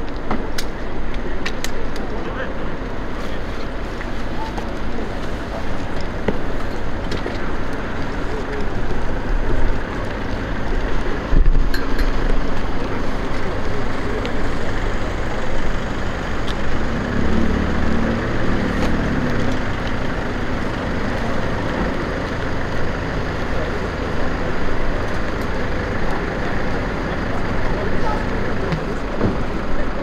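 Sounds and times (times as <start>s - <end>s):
low mechanical drone: 0.0s - 30.0s.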